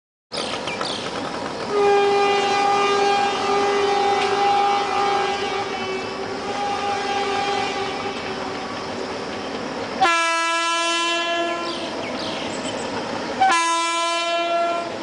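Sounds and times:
train running noise: 0.3s - 15.0s
train horn blast: 1.7s - 9.0s, 10.0s - 12.0s, 13.4s - 15.0s.

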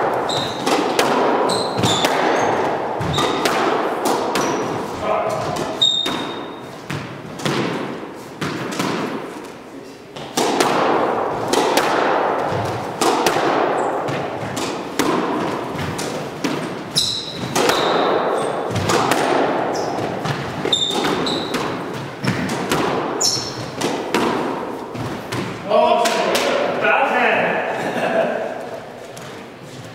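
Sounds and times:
ball hitting court walls: 0.0s - 26.8s
racquet striking squash ball: 0.0s - 26.8s
shoe squeaks on wooden floor: 0.2s - 0.7s, 1.4s - 3.4s, 4.4s - 4.8s, 5.7s - 6.9s, 16.9s - 18.6s, 20.6s - 22.5s, 23.2s - 23.8s.

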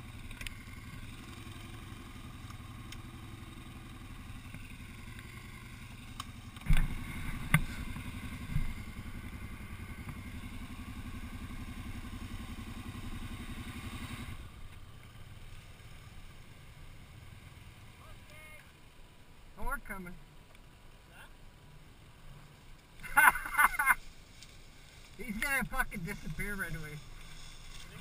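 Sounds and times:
atv engine running: 0.0s - 28.0s
sharp clunks: 6.6s - 7.8s.

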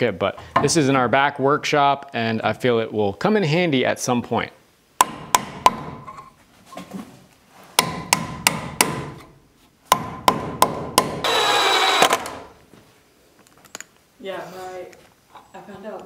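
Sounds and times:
hammer striking nails: 5.0s - 6.0s, 7.8s - 9.3s, 9.9s - 12.5s.

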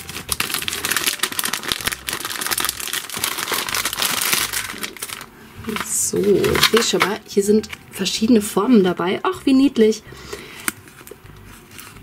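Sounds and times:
plastic wrapper crinkling and tearing: 0.0s - 7.8s.

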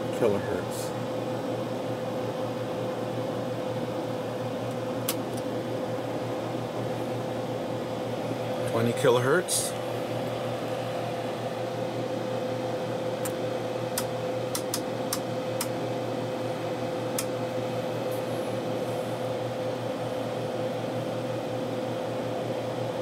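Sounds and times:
electronics humming and whirring: 0.0s - 23.0s
sharp clicks: 14.0s - 15.7s.

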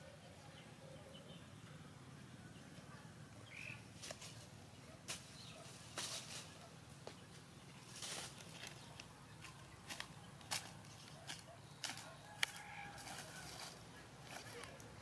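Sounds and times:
dry leaves rustling: 4.0s - 6.8s, 7.6s - 15.0s.

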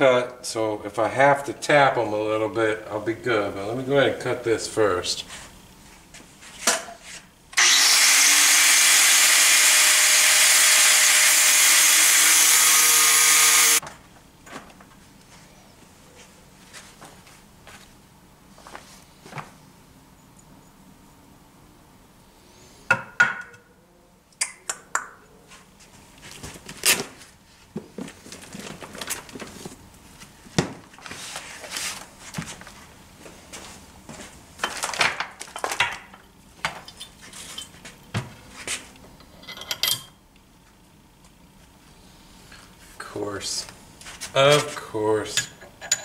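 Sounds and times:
metal tools clinking on workbench: 39.3s - 40.2s.

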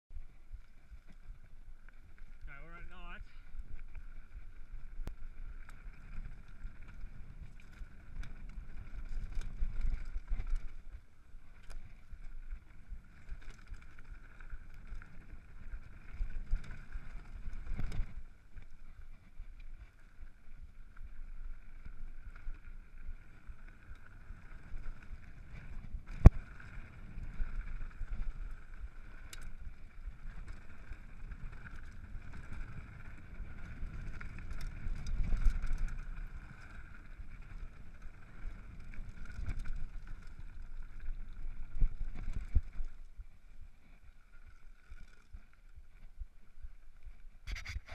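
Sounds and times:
bike tyres rumbling on dirt: 0.1s - 47.9s
wind on microphone: 47.4s - 47.9s.

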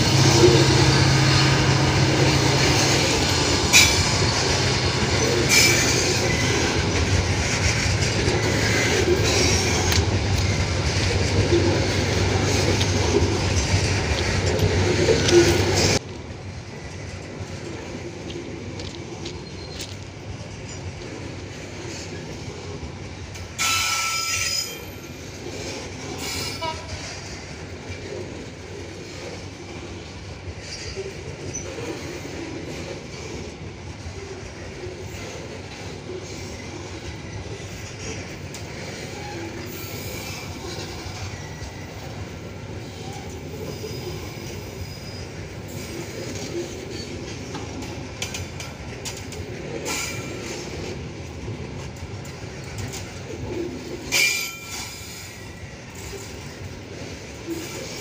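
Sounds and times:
freight train wheels rumbling: 0.0s - 58.0s
high-pitched wheel squeal: 5.5s - 6.4s.

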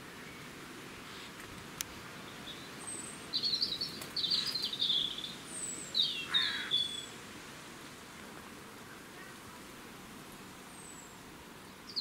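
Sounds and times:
songbird chirping and twittering: 2.0s - 7.2s, 10.6s - 12.0s.

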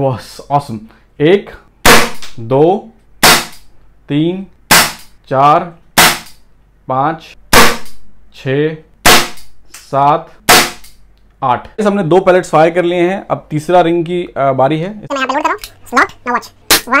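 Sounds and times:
air pistol shots: 1.8s - 2.4s, 3.2s - 3.7s, 4.7s - 5.1s, 6.0s - 6.4s, 7.5s - 8.1s, 9.0s - 9.6s, 10.4s - 11.0s
person speaking: 11.4s - 17.0s.

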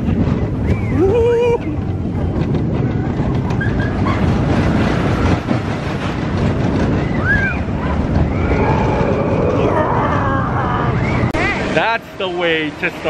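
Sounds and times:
roller coaster clattering rumble: 0.0s - 13.0s
riders whooping: 0.6s - 2.0s, 6.7s - 11.6s.

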